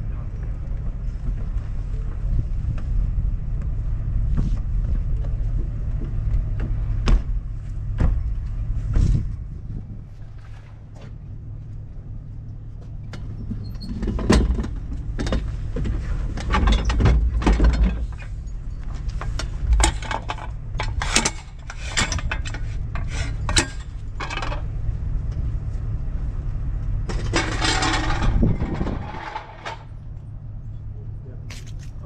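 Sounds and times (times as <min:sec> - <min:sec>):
tow truck engine running: 0:00.0 - 0:10.2, 0:10.8 - 0:32.0
hydraulic lift metal clanks: 0:13.1 - 0:24.7, 0:27.0 - 0:30.1.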